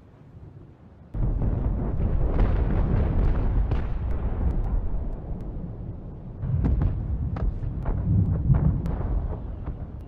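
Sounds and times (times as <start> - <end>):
distant cannon fire rumble: 1.2 - 10.0.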